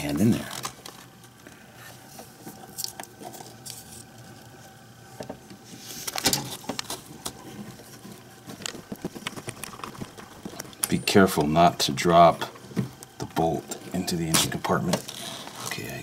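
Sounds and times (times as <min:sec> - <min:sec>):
hand clicking and rubbing on wiring: 0:06.8 - 0:11.5.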